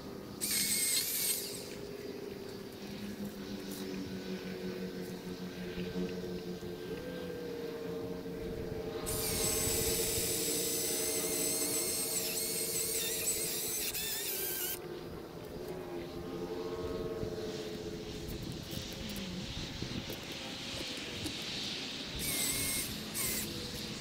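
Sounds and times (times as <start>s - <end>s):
chainsaw motor whine: 0.0s - 21.4s, 22.1s - 24.0s
chainsaw cutting wood: 0.4s - 1.8s, 9.1s - 14.8s, 22.2s - 23.9s.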